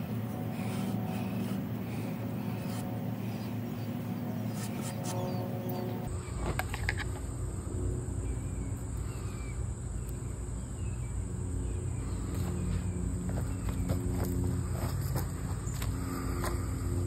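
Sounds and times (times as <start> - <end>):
constant high whine: 0.0 - 17.0
faint bird calls: 8.2 - 9.6.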